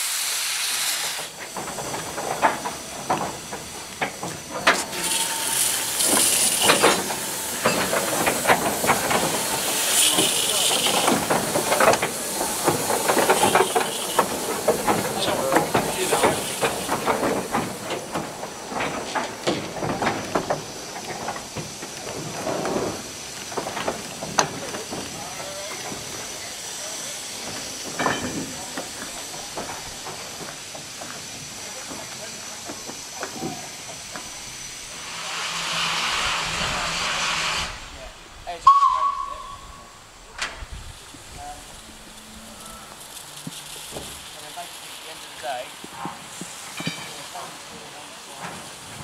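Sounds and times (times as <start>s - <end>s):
steam hissing: 0.0s - 49.0s
wagon wheels clanking on track: 1.2s - 34.3s, 38.6s - 49.0s
steam locomotive whistle: 13.3s - 14.3s, 38.6s - 40.0s.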